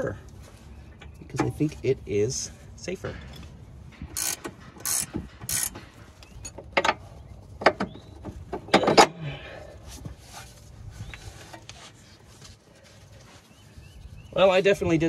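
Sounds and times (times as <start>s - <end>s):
hand ratchet clicking: 4.2s - 5.8s.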